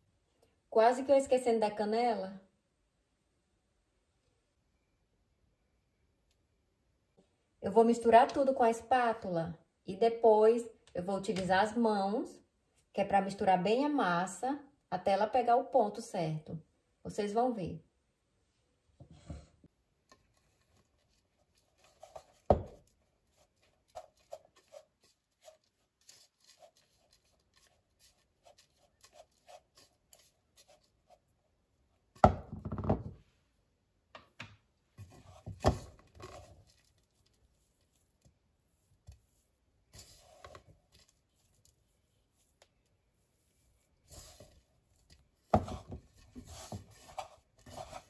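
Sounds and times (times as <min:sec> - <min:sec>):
spatula scraping dough in bowl: 0:43.5 - 0:48.0.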